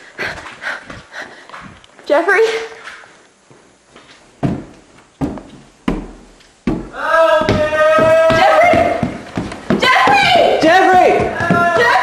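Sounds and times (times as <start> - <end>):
heavy footsteps on stairs: 3.4 - 12.0
person screaming: 7.0 - 9.0.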